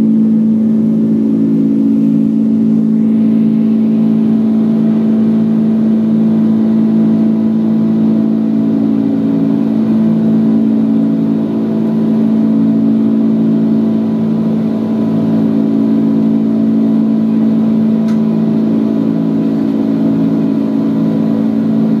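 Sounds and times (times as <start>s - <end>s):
airplane cabin engine drone: 0.0s - 22.0s.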